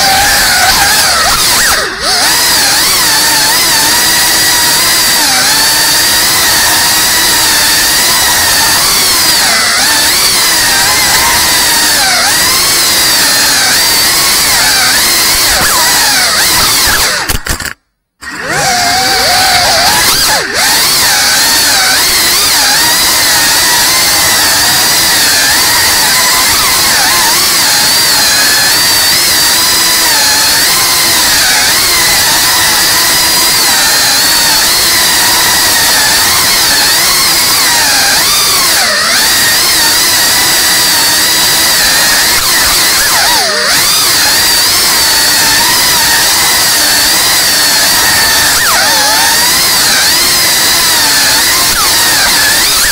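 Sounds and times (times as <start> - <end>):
drone propellers whining: 0.0 - 52.9.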